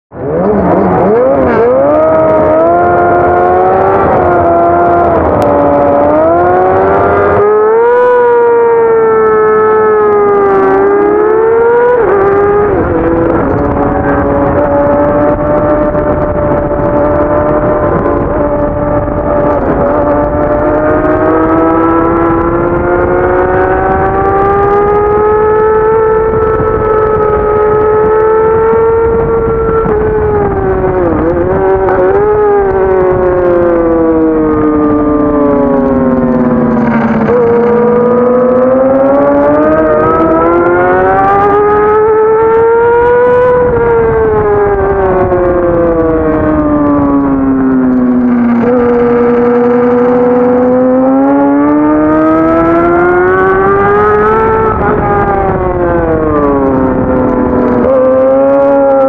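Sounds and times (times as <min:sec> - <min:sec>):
motorcycle engine accelerating: 0:00.1 - 0:59.0
wind rush: 0:00.1 - 0:59.0.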